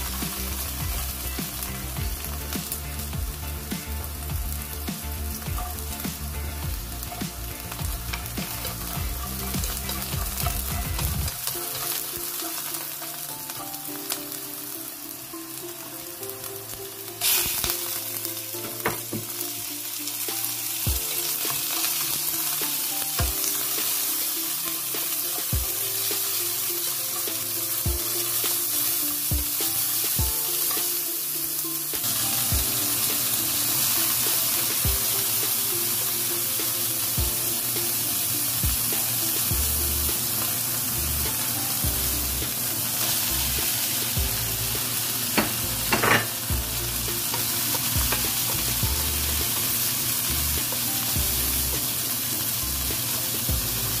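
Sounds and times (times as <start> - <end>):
food sizzling in a wok: 0.0 - 54.0.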